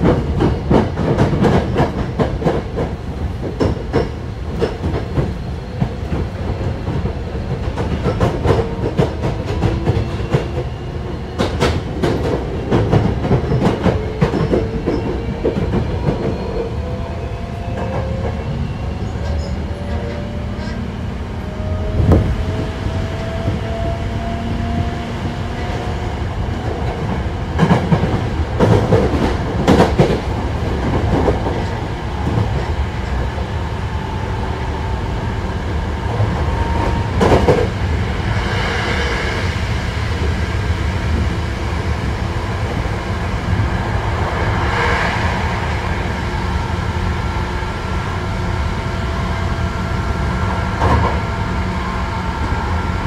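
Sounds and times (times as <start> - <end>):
rail joints clicking: 0.0 - 16.6, 26.5 - 33.4.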